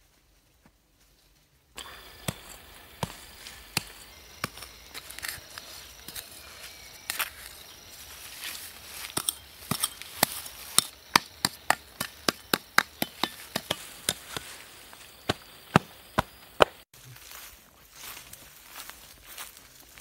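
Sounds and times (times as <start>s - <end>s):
trowel striking hard soil: 1.8s - 16.8s.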